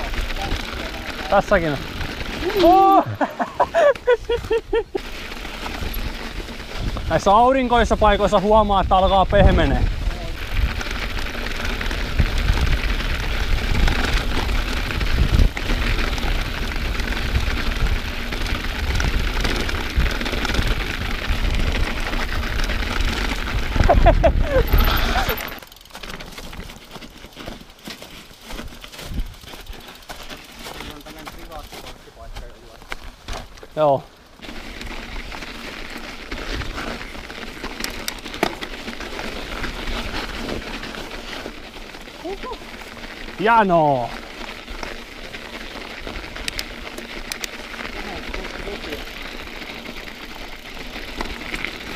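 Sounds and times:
bicycle tyres rolling on snow: 0.0 - 51.9
bike clicks and rattles: 0.0 - 51.9
wind on microphone: 5.8 - 25.4.

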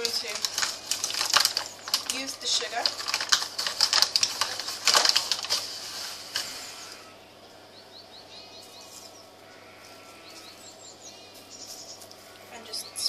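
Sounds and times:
paper bag crinkling: 0.0 - 7.0
small bird chirping: 7.7 - 13.0.

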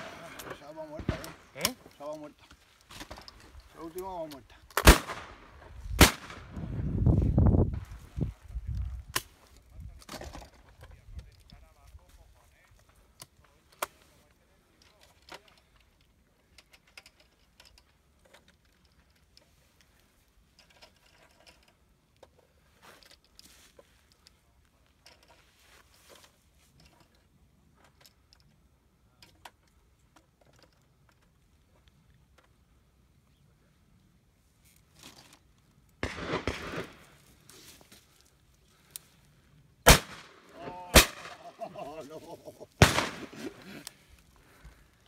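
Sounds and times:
shotgun shots: 4.8 - 6.5, 36.0 - 37.0, 39.8 - 41.6, 42.8 - 43.6.

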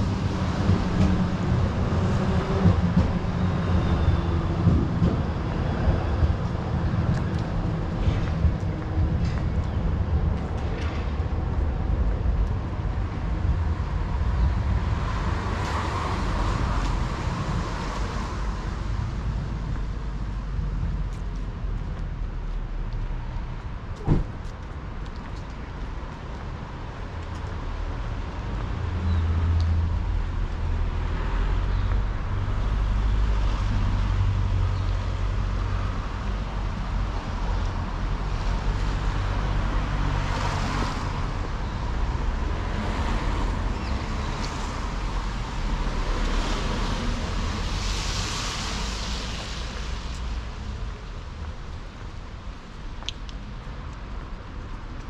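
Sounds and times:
car engines rumbling: 0.0 - 55.0
tyre hiss on wet road: 44.6 - 51.2.

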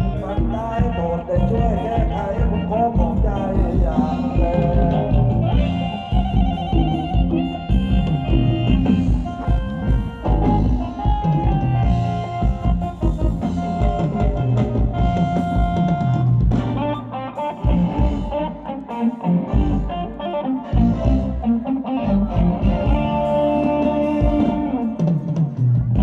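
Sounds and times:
dance band music: 0.0 - 26.0.

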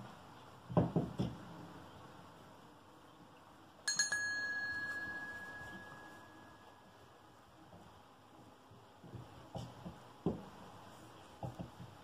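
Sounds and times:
small bell ringing: 3.8 - 7.2.

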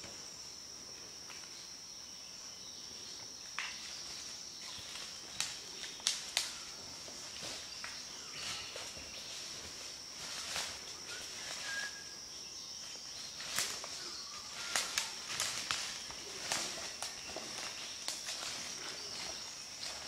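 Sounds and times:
high-pitched insect drone: 0.0 - 20.0
twigs crackling: 4.8 - 9.4, 13.3 - 20.0
footsteps crunching through dry leaves: 7.0 - 11.5, 13.2 - 20.0.

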